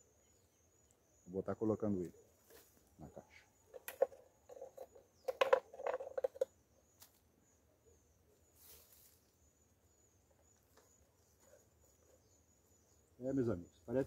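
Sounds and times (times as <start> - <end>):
handling knocks and clicks: 3.7 - 6.5.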